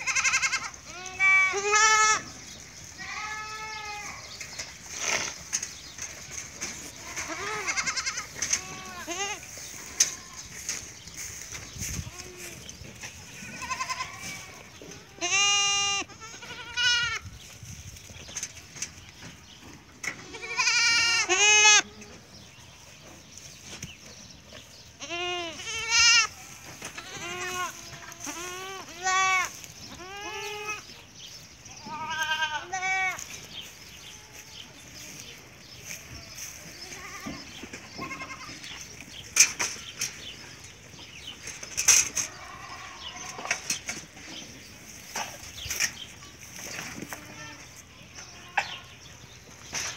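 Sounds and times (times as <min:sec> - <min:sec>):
goats bleating: 0:00.0 - 0:04.4, 0:06.2 - 0:17.2, 0:20.1 - 0:22.2, 0:24.9 - 0:30.9, 0:31.7 - 0:35.2, 0:35.8 - 0:38.8, 0:42.0 - 0:43.7, 0:46.7 - 0:49.0.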